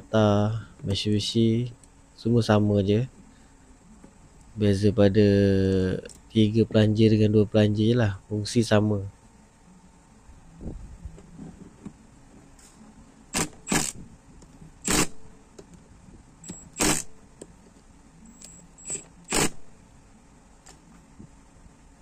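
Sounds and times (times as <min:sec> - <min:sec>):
rustling and scraping: 0:11.2 - 0:12.8.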